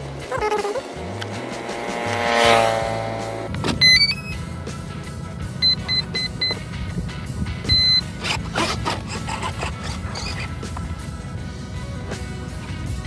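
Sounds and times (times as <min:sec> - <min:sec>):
background music: 0:00.0 - 0:13.0
motor startup beeps: 0:03.8 - 0:04.5, 0:05.6 - 0:06.6, 0:07.6 - 0:08.2.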